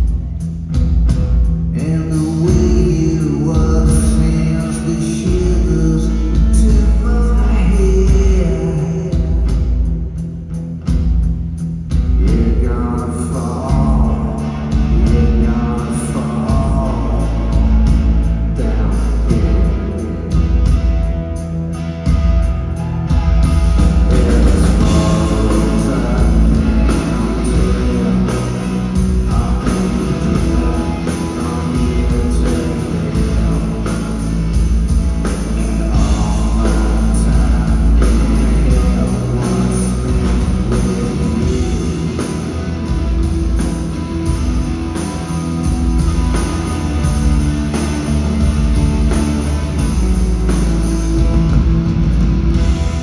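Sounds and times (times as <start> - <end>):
bass guitar: 0.0 - 53.0
drums: 0.0 - 53.0
electric guitars: 0.0 - 53.0
person singing: 12.2 - 20.8, 24.1 - 43.0.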